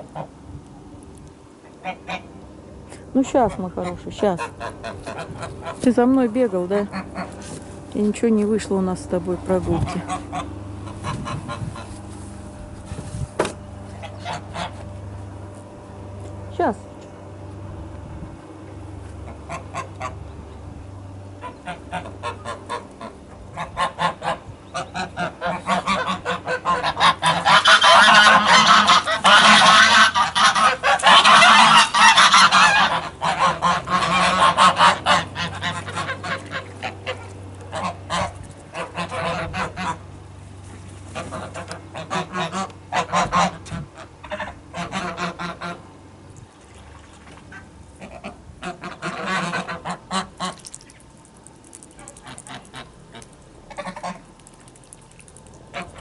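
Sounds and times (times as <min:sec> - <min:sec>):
geese honking: 0:01.7 - 0:02.4, 0:03.4 - 0:06.1, 0:06.7 - 0:07.5, 0:09.6 - 0:12.1, 0:13.9 - 0:14.9, 0:19.2 - 0:20.5, 0:21.4 - 0:40.3, 0:41.0 - 0:46.0, 0:47.5 - 0:51.0, 0:51.9 - 0:54.6, 0:55.7 - 0:56.0.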